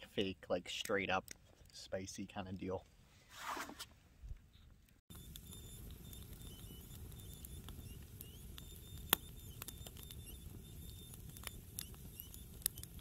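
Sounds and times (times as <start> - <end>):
campfire crackling: 5.1 - 13.0
wood popping: 5.1 - 13.0.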